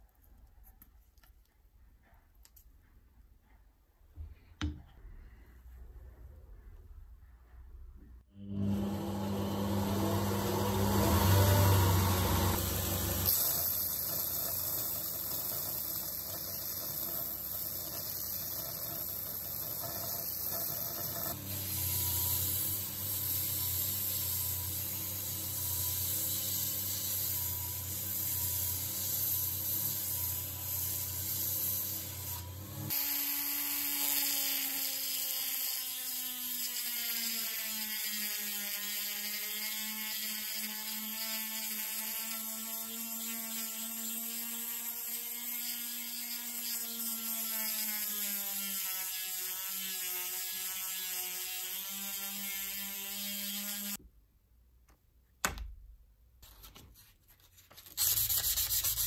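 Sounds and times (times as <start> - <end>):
belt grinder humming: 8.5 - 40.3
rotary tool whining: 8.6 - 40.5
steel grinding on abrasive belt: 8.7 - 35.4.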